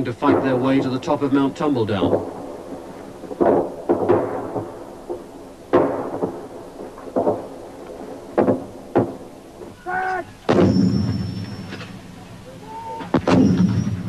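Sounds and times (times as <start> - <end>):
distant gunfire bangs echoing: 0.0 - 9.8, 10.4 - 12.2, 13.0 - 14.0
man shouting: 9.8 - 10.4, 12.6 - 13.1.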